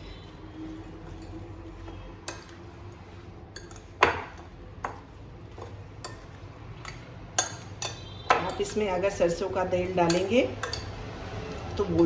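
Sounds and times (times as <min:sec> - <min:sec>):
metal spoon clinking on glass bowl: 0:01.1 - 0:02.6, 0:03.5 - 0:05.0, 0:05.6 - 0:08.8, 0:09.9 - 0:11.0.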